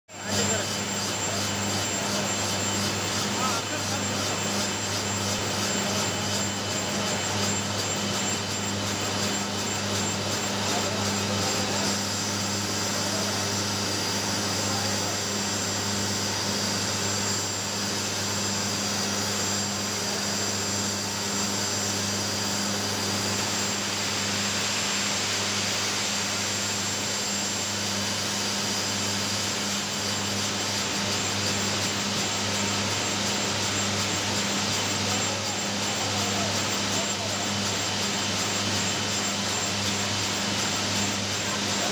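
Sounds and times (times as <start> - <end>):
steam turbine low hum: 0.1 - 41.9
steam hiss: 22.1 - 27.8.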